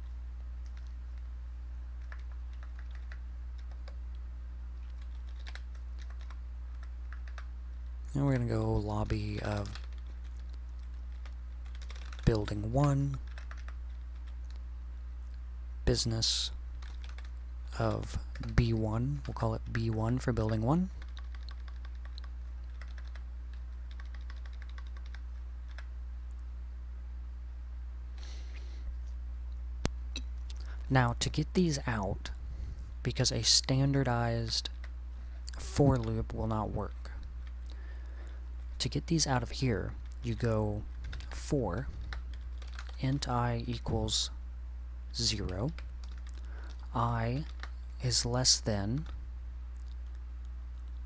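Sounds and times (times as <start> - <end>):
low electrical hum: 0.0 - 51.0
keyboard keys clicking: 2.0 - 4.0, 4.8 - 7.5, 9.6 - 12.3, 13.2 - 14.6, 16.8 - 17.3, 19.7 - 25.9, 42.1 - 43.0, 45.8 - 46.8.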